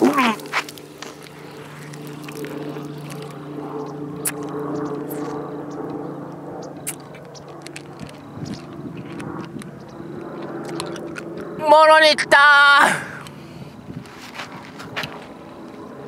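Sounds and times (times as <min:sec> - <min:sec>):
man humming and groaning: 0:00.0 - 0:00.6.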